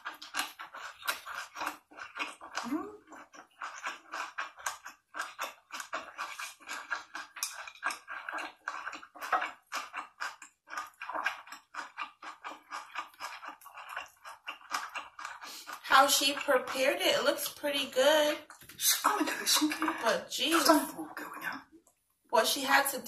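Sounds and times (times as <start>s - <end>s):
wet mouth clicks and smacks: 0.0s - 15.8s
person chewing food: 0.0s - 17.5s, 18.4s - 22.0s.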